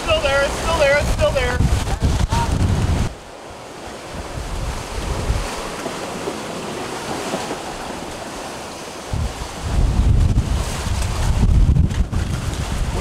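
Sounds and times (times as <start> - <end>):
sea water rushing along hull: 0.0 - 13.0
wind buffeting microphone: 0.0 - 13.0.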